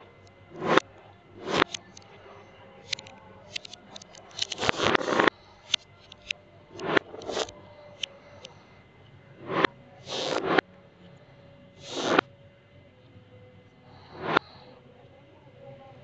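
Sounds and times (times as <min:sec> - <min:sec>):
metal balls scraping over a board: 0:00.5 - 0:00.8, 0:01.4 - 0:01.7, 0:04.5 - 0:05.3, 0:06.8 - 0:07.5, 0:09.4 - 0:10.6, 0:11.8 - 0:12.2, 0:14.2 - 0:14.4.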